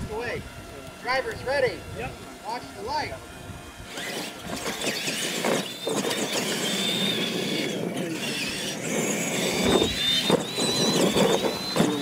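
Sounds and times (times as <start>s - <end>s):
electric motors whining: 0.0s - 12.0s
toy trucks rattling over dirt: 3.9s - 12.0s.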